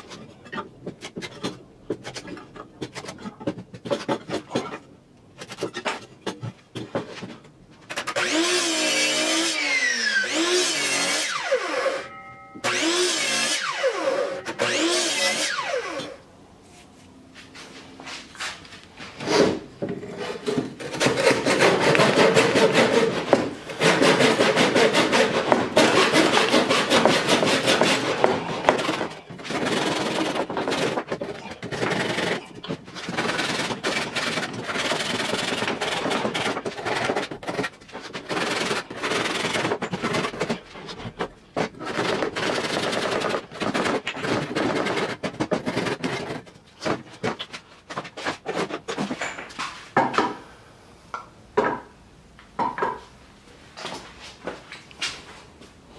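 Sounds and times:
hand saw cutting wood: 7.9 - 16.2, 19.2 - 49.2.

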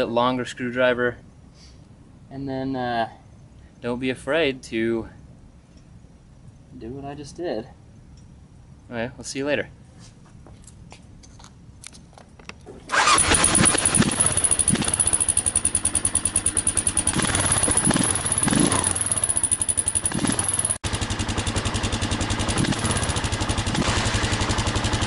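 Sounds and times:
motorcycle engine pulsing: 12.8 - 25.0.

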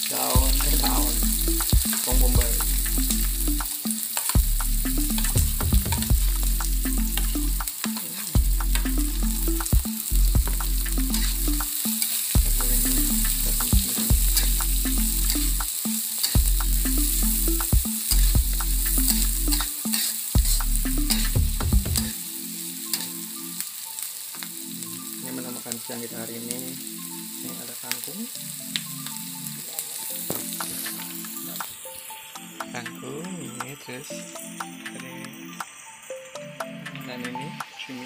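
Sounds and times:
onion sizzling in hot oil: 0.0 - 36.6
low hum in stepped tones: 4.4 - 7.6, 8.4 - 11.7, 12.4 - 15.7, 16.4 - 19.7, 20.4 - 22.2.

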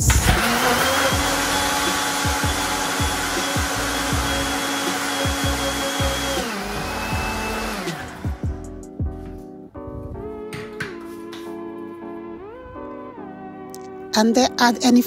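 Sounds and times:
blender running: 0.0 - 8.6.

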